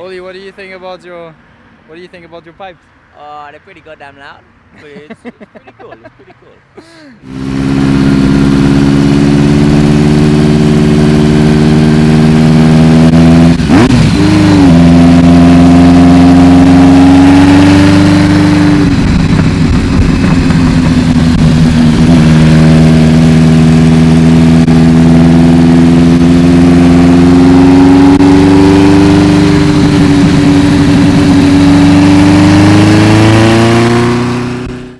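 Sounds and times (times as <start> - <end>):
motorcycle engine with loud exhaust: 7.2 - 34.9.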